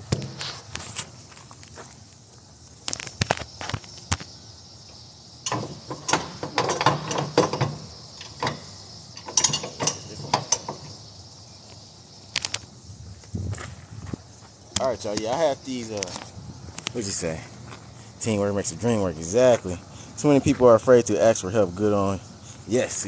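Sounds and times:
metal strap hardware clanking: 0:05.4 - 0:10.9
strap winches ratcheting: 0:05.5 - 0:10.8.

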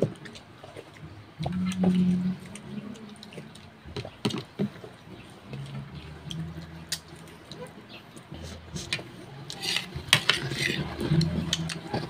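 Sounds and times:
wet chewing and lip smacks: 0:00.0 - 0:09.1.

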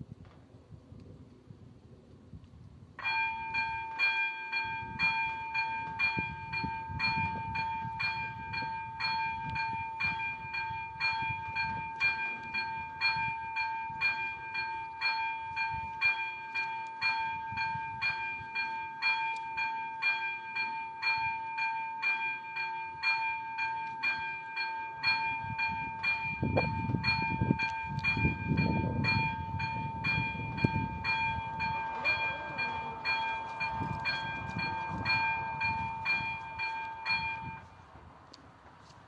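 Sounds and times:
level-crossing warning bell ringing: 0:03.0 - 0:37.7.

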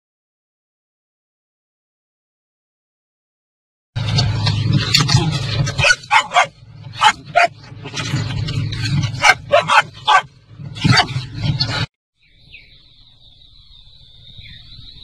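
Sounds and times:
dog barking and yipping: 0:05.7 - 0:07.7, 0:08.8 - 0:11.2.

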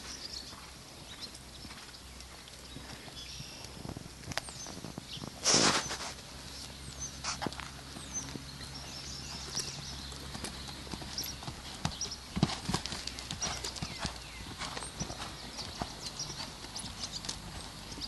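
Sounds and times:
horse hoofbeats on dirt: 0:00.0 - 0:18.0.

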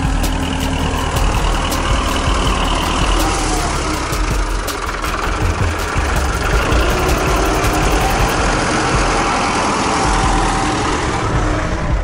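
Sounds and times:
tractor diesel engine idling: 0:00.0 - 0:12.0.

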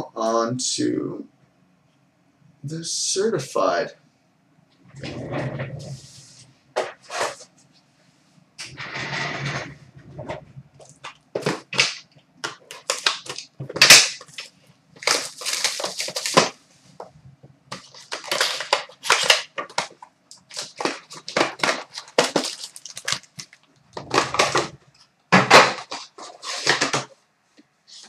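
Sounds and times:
cardboard and foil packs tearing: 0:10.8 - 0:16.6, 0:17.7 - 0:24.7.

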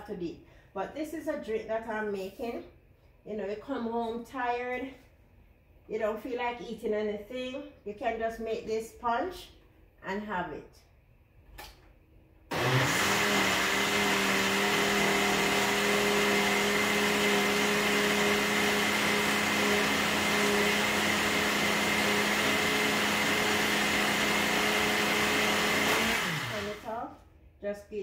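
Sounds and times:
blender motor running: 0:12.5 - 0:27.0.

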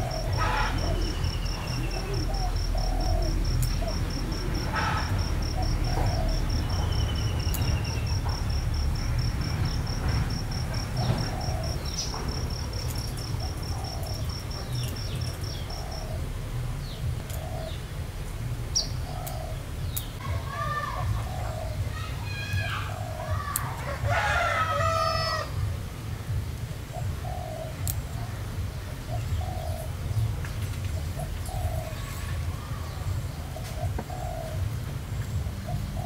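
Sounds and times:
insect high pulsed trill: 0:00.0 - 0:16.2
steady low rumble: 0:00.0 - 0:24.2, 0:25.4 - 0:36.0
low bird calls: 0:00.0 - 0:25.7, 0:26.9 - 0:36.0.

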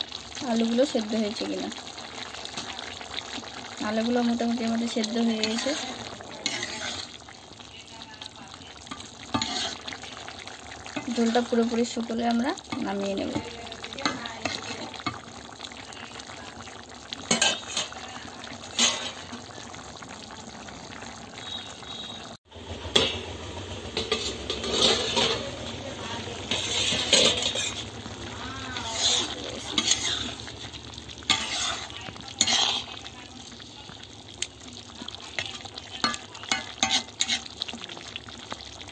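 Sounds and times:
food sizzling: 0:00.0 - 0:38.9
spatula scraping a wok: 0:03.9 - 0:07.3, 0:08.9 - 0:10.2, 0:10.9 - 0:15.2, 0:17.3 - 0:19.4, 0:23.9 - 0:33.3, 0:35.2 - 0:37.7.

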